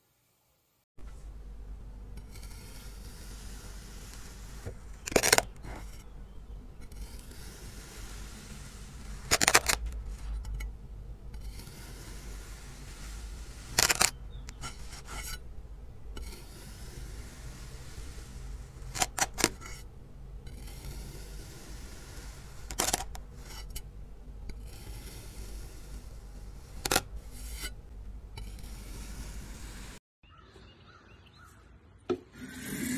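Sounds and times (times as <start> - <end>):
knife slicing with crisp scrape: 2.2 - 6.2, 6.8 - 15.5, 16.2 - 19.9, 20.5 - 23.8, 24.5 - 27.8, 28.4 - 29.9.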